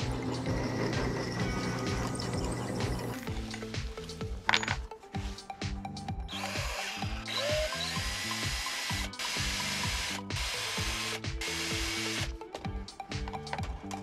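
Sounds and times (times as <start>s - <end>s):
background music with steady beat: 0.0s - 14.0s
power tool motor running: 6.3s - 12.4s.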